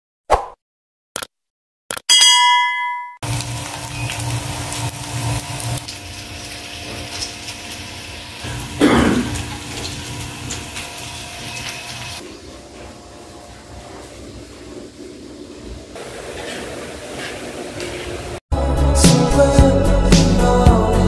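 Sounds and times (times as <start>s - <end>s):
bell-like notification chime: 2.1s - 3.2s.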